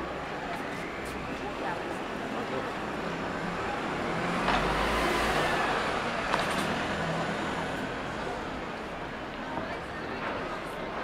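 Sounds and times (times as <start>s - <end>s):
bus driving past: 0.0s - 11.0s.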